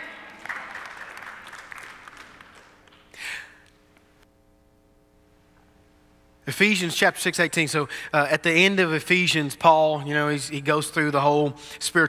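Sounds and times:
congregation applauding: 0.0 - 3.7
faint steady hum: 0.0 - 12.0.

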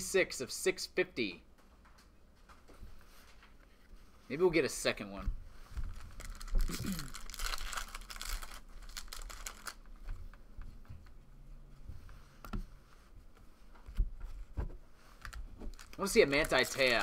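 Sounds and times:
cards being shuffled: 5.9 - 9.8, 15.1 - 17.0
foil wrapper crinkling: 5.9 - 9.9, 15.2 - 17.0.

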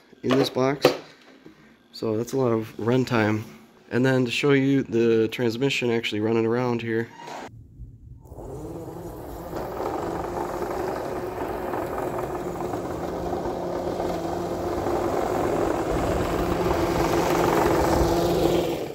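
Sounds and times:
toy snowcat motors humming: 8.3 - 18.9.

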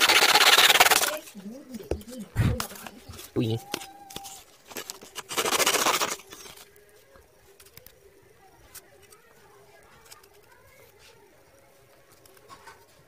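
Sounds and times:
blade cutting cardboard: 0.0 - 1.3
faint clicks of cardboard pieces: 1.7 - 5.2, 6.2 - 13.0.

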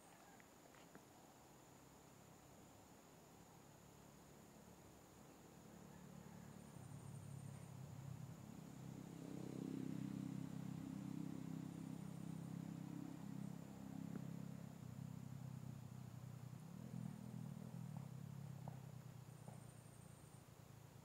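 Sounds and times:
low engine hum: 5.9 - 21.0.

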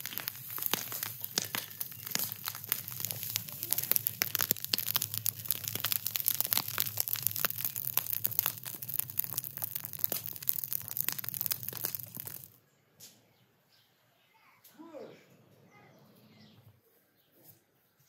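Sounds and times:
burning straw crackling: 0.0 - 12.6.

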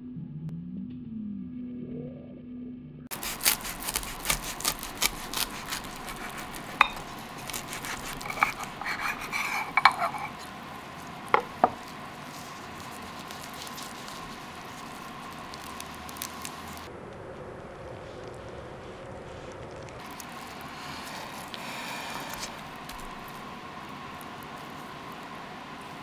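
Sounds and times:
knife sawing through toasted bread: 3.1 - 16.9, 20.2 - 23.6.

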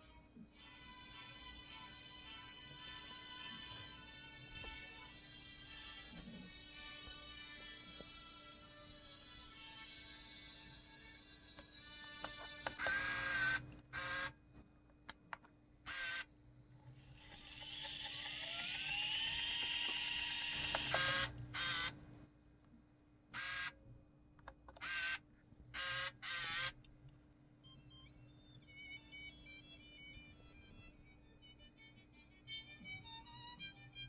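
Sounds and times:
tape winding whir: 9.5 - 14.4, 15.9 - 22.0.

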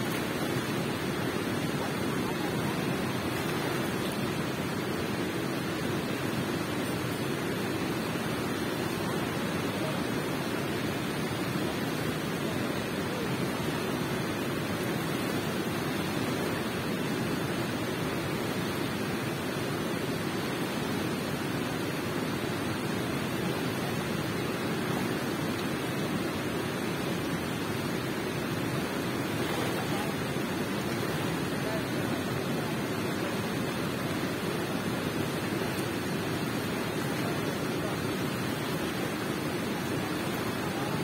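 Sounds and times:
water rushing in a cave: 0.0 - 41.0.

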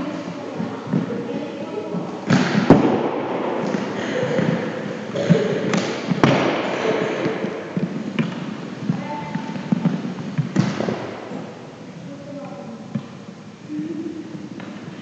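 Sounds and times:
sticks and ball knocking: 2.0 - 11.5.

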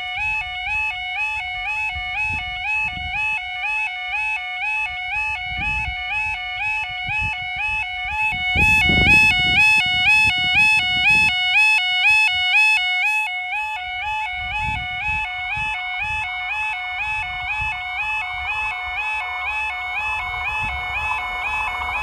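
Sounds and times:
level crossing alarm warbling: 3.6 - 22.0
low rumbling noise: 16.7 - 22.0.

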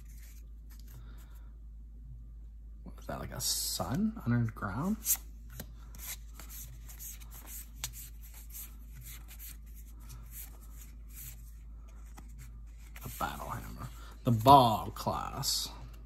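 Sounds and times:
cards flipped by hand: 5.0 - 13.2.

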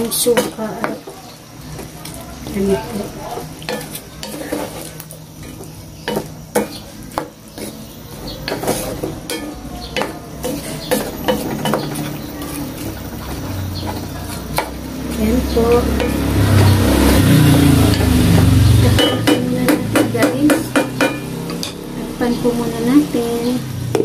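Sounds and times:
sauce sizzling: 0.0 - 24.0
wooden spatula scraping a pot: 3.3 - 16.8.

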